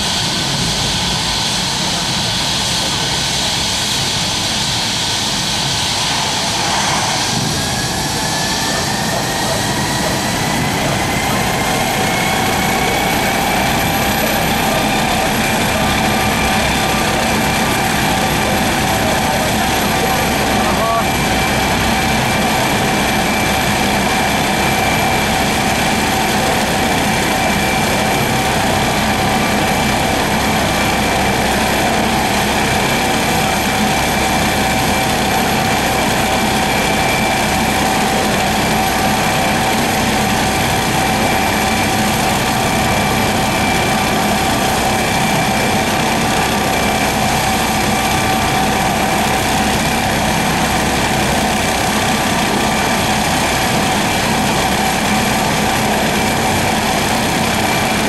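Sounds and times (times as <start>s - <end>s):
helicopter turbine whine and rotor: 0.0s - 58.0s.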